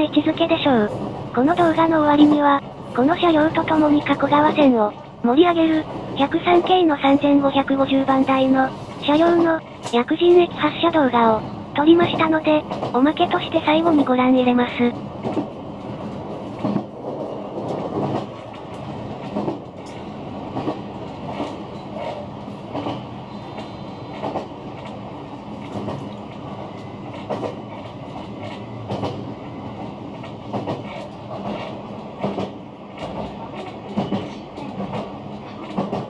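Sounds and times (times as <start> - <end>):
train rumbling: 0.0 - 36.0.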